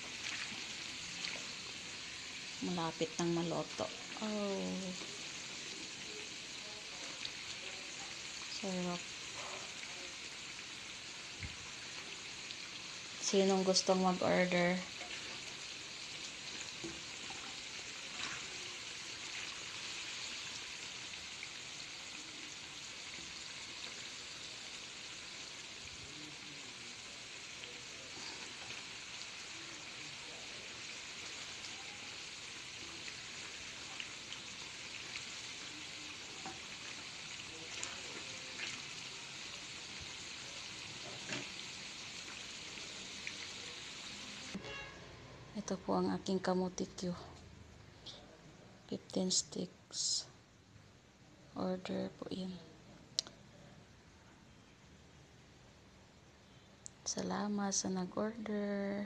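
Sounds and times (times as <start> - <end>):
food sizzling in hot oil: 0.0 - 44.9.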